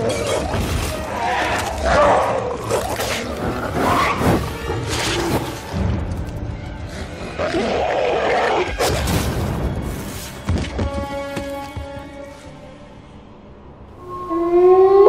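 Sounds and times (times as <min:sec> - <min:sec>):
animal growls and roars: 0:00.0 - 0:05.8, 0:06.8 - 0:09.4, 0:14.0 - 0:15.0
background music: 0:00.0 - 0:15.0.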